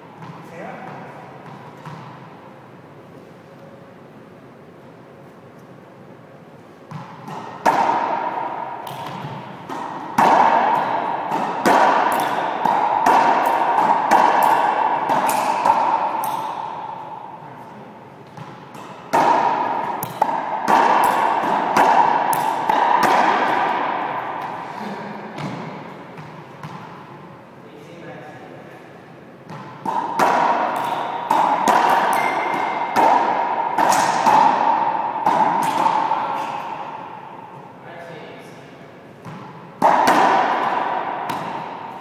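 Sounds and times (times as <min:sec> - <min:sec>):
racquet striking ball: 0:00.2 - 0:02.4, 0:06.8 - 0:17.4, 0:18.2 - 0:27.3, 0:29.4 - 0:37.7, 0:39.2 - 0:42.0
ball smacking court walls: 0:06.9 - 0:17.0, 0:18.2 - 0:27.0, 0:29.5 - 0:37.1, 0:39.2 - 0:42.0.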